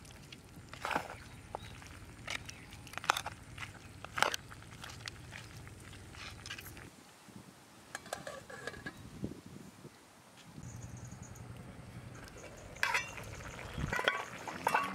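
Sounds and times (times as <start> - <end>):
metal lid clink and ring: 12.4 - 13.2.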